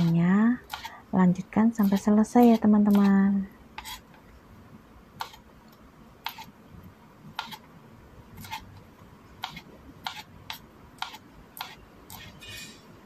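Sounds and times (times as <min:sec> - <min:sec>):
knife chopping on cutting board: 0:00.0 - 0:01.0, 0:01.7 - 0:03.1, 0:06.2 - 0:06.5, 0:07.4 - 0:07.6, 0:08.4 - 0:08.6, 0:09.4 - 0:12.5.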